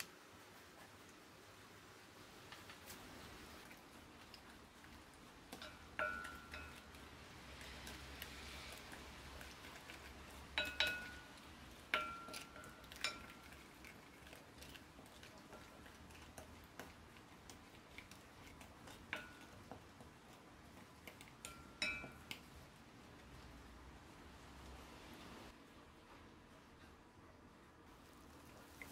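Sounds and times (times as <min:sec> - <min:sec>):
spoon stirring thick sauce: 0:03.5 - 0:23.6
spoon clinking on glass bowl: 0:05.6 - 0:07.0, 0:10.5 - 0:13.6, 0:21.4 - 0:22.4.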